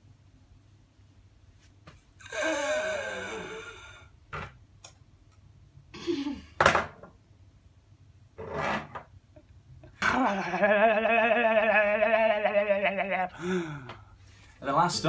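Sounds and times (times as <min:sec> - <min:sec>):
man's breathy exhales: 0:02.2 - 0:04.1, 0:13.3 - 0:14.3.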